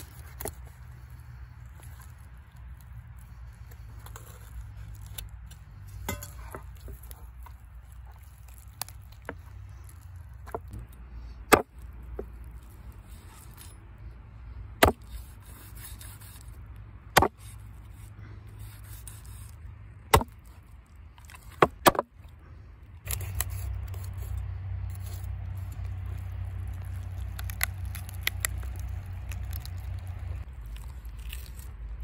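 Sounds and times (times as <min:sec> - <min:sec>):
cleaver chopping on wooden board: 0:14.8 - 0:15.1, 0:20.1 - 0:20.4, 0:21.6 - 0:22.1.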